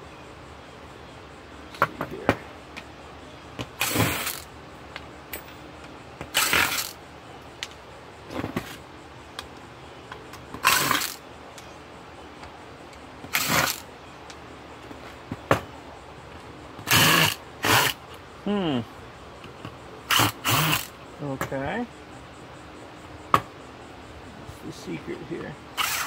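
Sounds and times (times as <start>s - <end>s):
cordless driver bursts: 3.8s - 4.5s, 6.3s - 7.0s, 10.6s - 11.2s, 13.3s - 13.8s, 16.8s - 18.0s, 20.1s - 20.9s, 25.8s - 26.0s.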